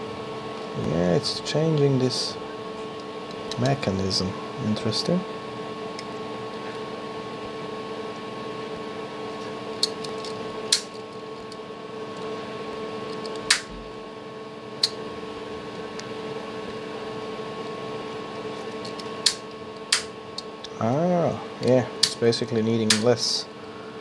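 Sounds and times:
steady hum: 0:00.0 - 0:24.0
sharp plastic and metal clicks: 0:13.1 - 0:13.7, 0:18.9 - 0:20.5, 0:22.9 - 0:23.1.

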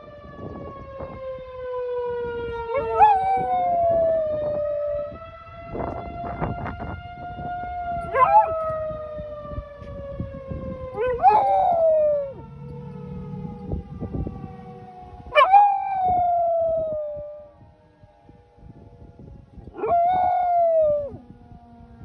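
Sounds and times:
warning siren falling tone: 0:00.0 - 0:22.0
dog howling: 0:02.6 - 0:04.4, 0:08.0 - 0:08.8, 0:11.0 - 0:12.4, 0:15.4 - 0:17.2, 0:19.8 - 0:21.2.

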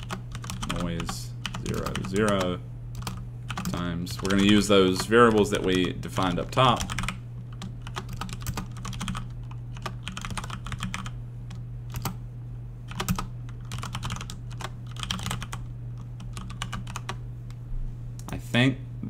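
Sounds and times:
typing on keyboard: 0:00.0 - 0:06.0, 0:06.7 - 0:11.2, 0:11.9 - 0:12.2, 0:12.9 - 0:15.6, 0:16.2 - 0:17.2
steady low hum: 0:00.0 - 0:19.0.

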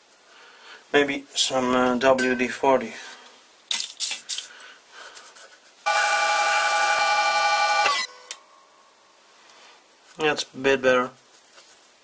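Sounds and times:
lathe whining: 0:05.9 - 0:08.3.

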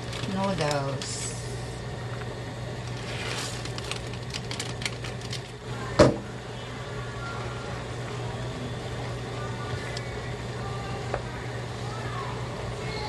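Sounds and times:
plastic packet crinkling: 0:00.0 - 0:01.3, 0:02.8 - 0:05.6
steady low hum: 0:00.0 - 0:13.0.

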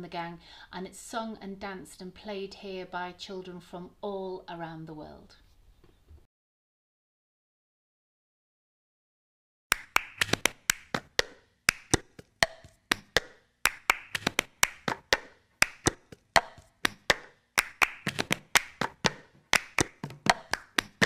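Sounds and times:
hand claps: 0:09.7 - 0:21.0.

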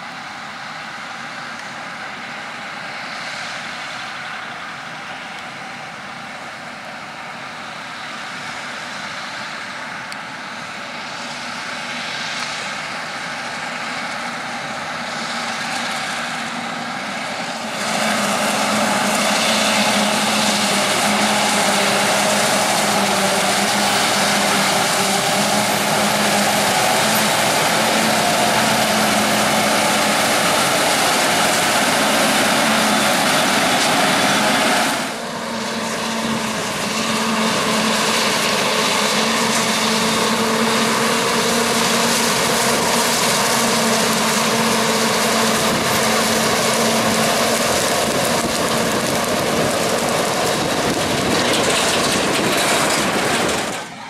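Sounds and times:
low engine hum: 0:00.0 - 0:54.0
forage harvester chopping: 0:17.6 - 0:35.2.

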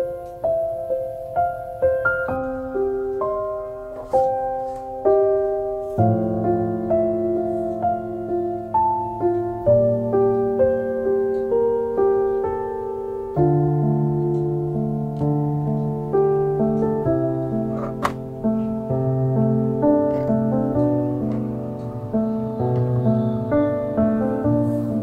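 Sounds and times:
piano music: 0:00.0 - 0:25.0.

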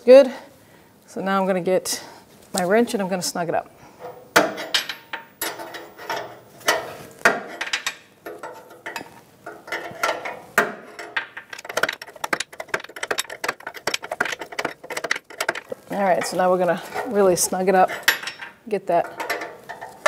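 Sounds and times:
metal wrench clinking: 0:07.6 - 0:20.0.

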